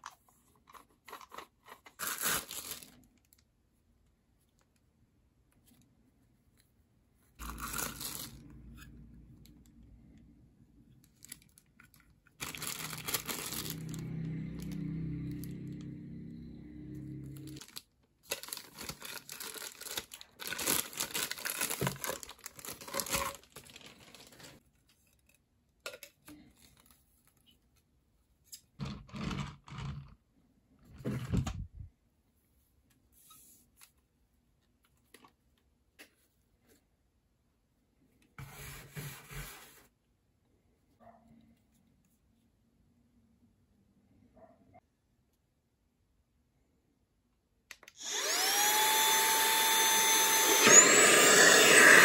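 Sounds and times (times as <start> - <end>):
plastic bags crinkling and tearing: 1.9 - 3.4, 7.4 - 8.6, 11.2 - 14.1, 17.4 - 24.6.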